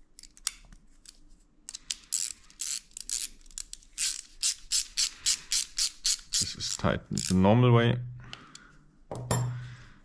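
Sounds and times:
ratchet tool clicking: 1.7 - 6.4.

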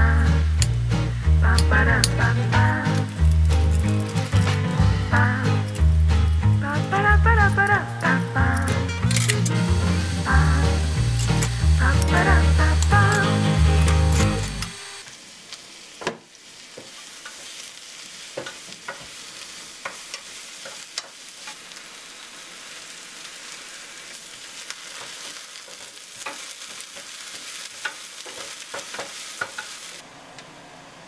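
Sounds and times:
onion sizzling in oil: 0.0 - 30.1
wooden spatula scraping a pan: 24.8 - 29.9.

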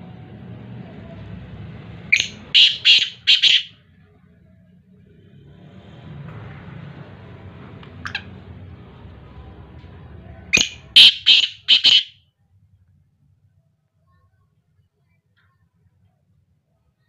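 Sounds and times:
francolin calling: 2.1 - 3.7, 10.6 - 12.2.

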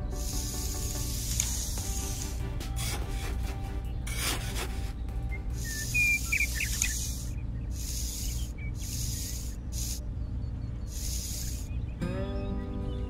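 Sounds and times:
trowel scraping sand: 0.0 - 7.2
low steady hum: 0.0 - 13.0.

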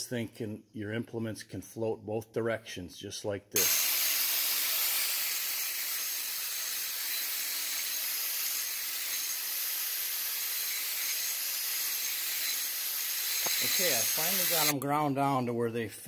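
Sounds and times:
angle grinder grinding steel: 3.6 - 14.8.

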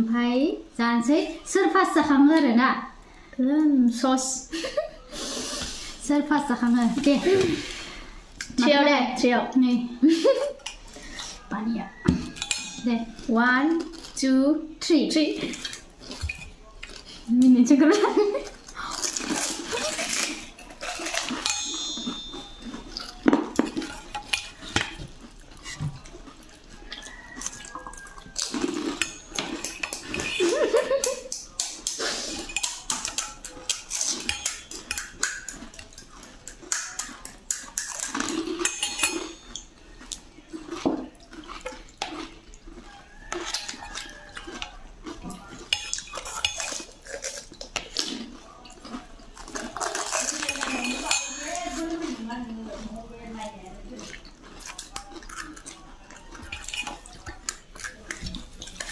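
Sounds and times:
crunching and chewing: 10.2 - 14.3, 15.3 - 58.9
spoons clinking on steel plates: 12.1 - 13.3, 15.5 - 16.6, 19.4 - 26.1, 27.0 - 39.8, 43.1 - 47.8, 49.4 - 53.0, 54.8 - 58.9.

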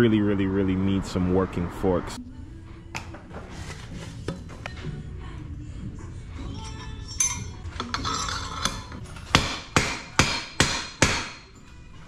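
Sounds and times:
metal parts clinking: 6.5 - 9.3
hammer striking metal: 7.2 - 11.6.

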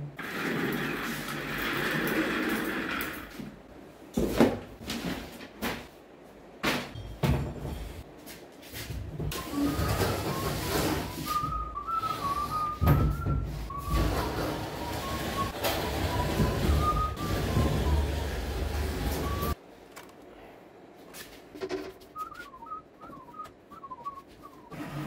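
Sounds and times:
person whistling a tune: 9.3 - 19.6, 22.2 - 25.0.

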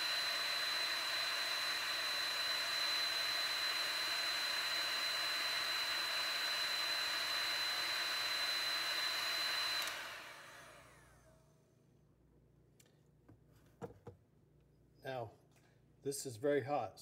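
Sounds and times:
fan winding down: 0.0 - 11.3
heat gun blowing with whine: 0.0 - 11.5.

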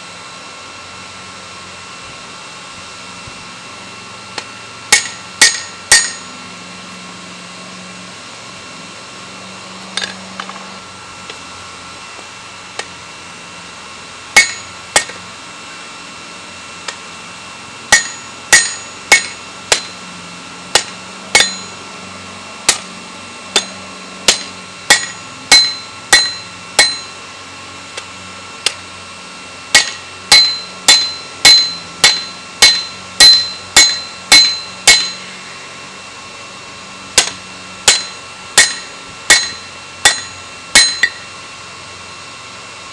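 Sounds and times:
hammer striking metal on anvil: 4.4 - 6.4, 10.0 - 10.6, 14.4 - 15.2, 17.9 - 20.0, 20.7 - 21.8, 22.7 - 22.9, 23.5 - 27.2, 29.7 - 35.4, 37.2 - 41.3.

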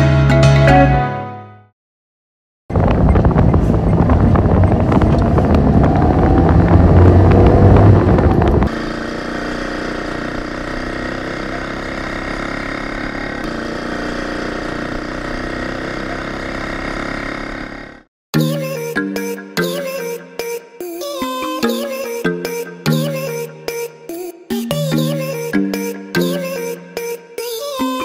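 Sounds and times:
car engine running: 2.7 - 18.1
tricycle engine drone: 2.7 - 18.1.

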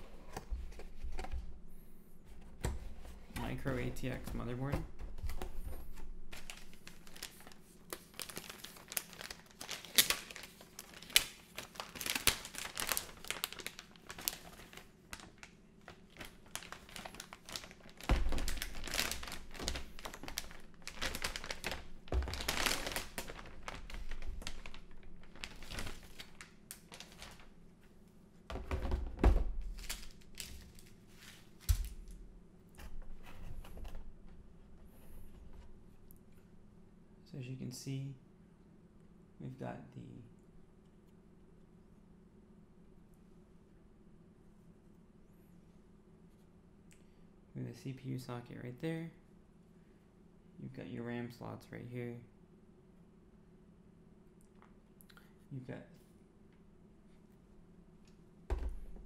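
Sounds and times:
plastic bag crinkling: 6.4 - 27.5, 29.6 - 32.2.

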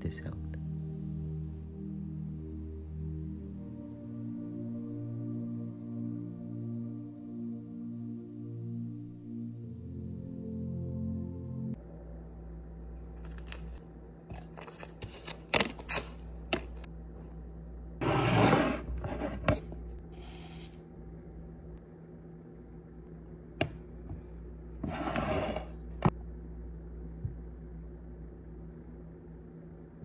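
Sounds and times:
steady low hum: 0.0 - 30.0
tea packet crinkling and tearing: 13.2 - 16.8.

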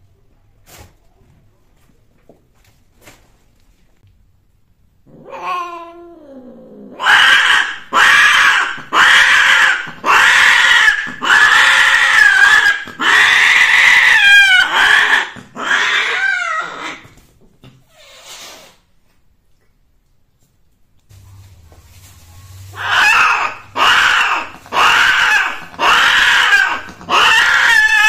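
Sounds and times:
cat yowling: 5.1 - 17.0, 22.7 - 28.0.

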